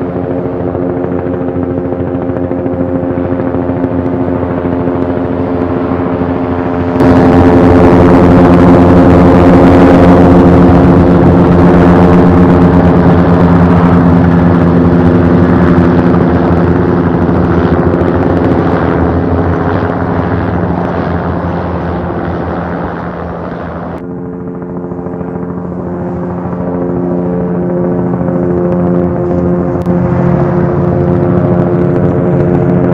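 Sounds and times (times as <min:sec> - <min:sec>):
helicopter rotor and engine drone: 0:00.0 - 0:32.9
muffled helicopter: 0:00.0 - 0:32.9.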